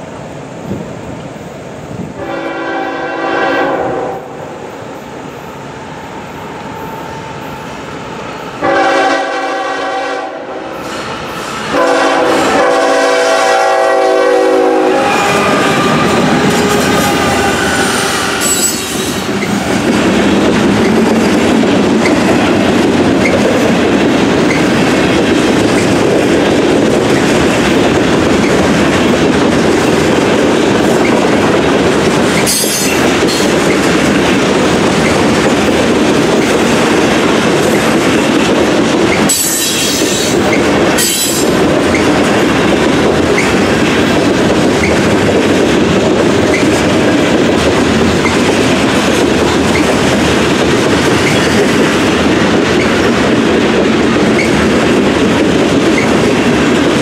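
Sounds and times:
train passing rumble: 0.0 - 57.0
train air horn blasts: 2.2 - 4.6, 8.6 - 11.0, 11.7 - 19.2
train wheels clicking: 10.7 - 57.0.

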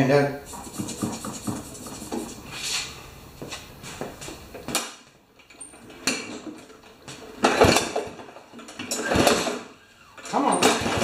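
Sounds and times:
objects clattering and knocking: 4.5 - 11.0.

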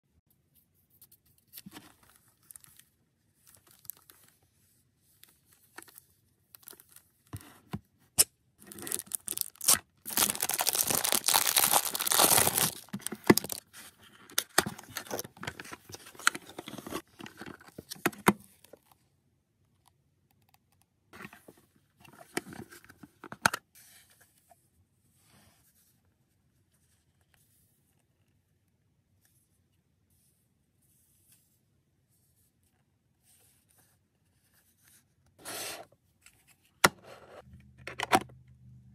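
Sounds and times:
cardboard clicks and rustles: 8.6 - 18.8
cardboard tearing and scraping: 8.7 - 13.6.

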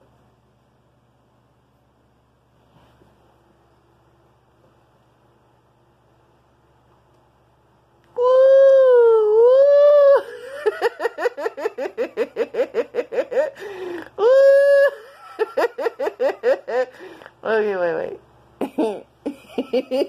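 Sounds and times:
person falsetto wailing and yelping: 8.2 - 10.7, 14.2 - 15.3.

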